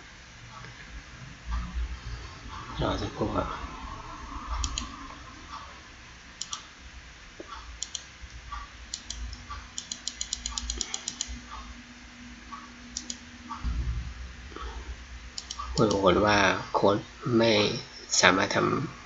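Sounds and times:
faint steady hum: 0.0s - 19.0s
computer mouse clicks: 4.6s - 5.0s, 6.4s - 6.7s, 7.4s - 11.4s, 12.9s - 13.2s, 15.4s - 16.0s.

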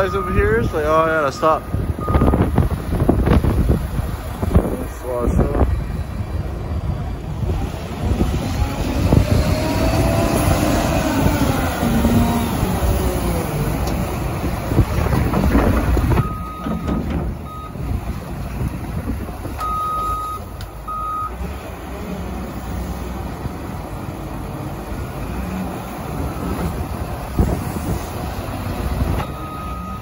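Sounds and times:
diesel engine revving: 0.0s - 30.0s
reversing alarm beeps: 2.0s - 2.4s, 16.2s - 17.8s, 19.6s - 21.3s, 29.2s - 30.0s.

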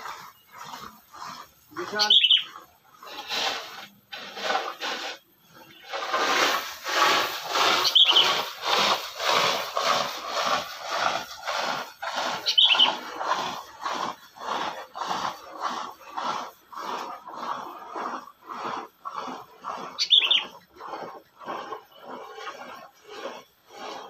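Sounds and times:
harsh scratchy strokes: 0.0s - 24.0s
bird chirps: 1.9s - 2.6s, 7.8s - 8.4s, 12.4s - 13.0s, 20.0s - 20.6s.

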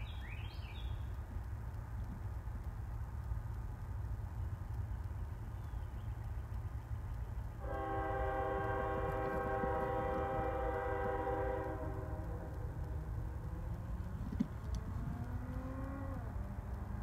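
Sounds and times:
locomotive air horn blast: 7.6s - 12.6s.

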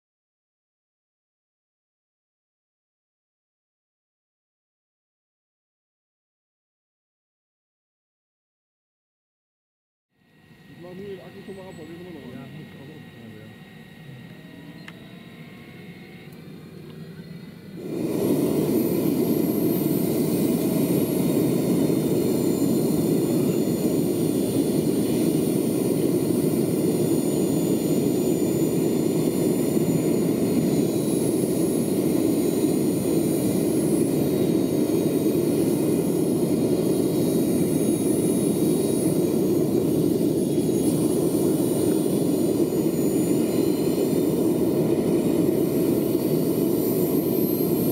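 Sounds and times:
model turbine whining and rushing: 10.2s - 47.9s.

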